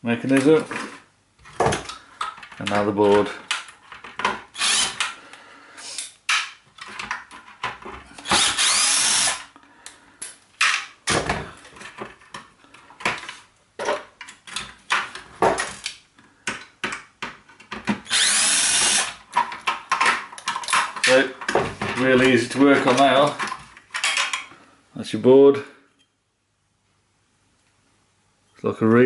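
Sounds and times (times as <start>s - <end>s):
plastic parts and screws clicking: 1.5s - 5.2s, 5.9s - 10.9s, 11.6s - 24.5s
cordless drill spinning: 4.6s - 5.2s, 8.2s - 9.5s, 18.1s - 19.2s.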